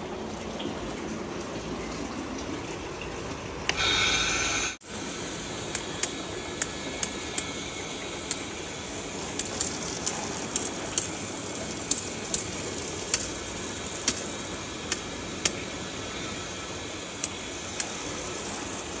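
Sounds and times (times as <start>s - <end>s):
hose nozzle spray hissing: 3.8s - 19.0s
sharp ticks: 5.7s - 7.5s, 9.2s - 15.6s, 17.2s - 18.8s.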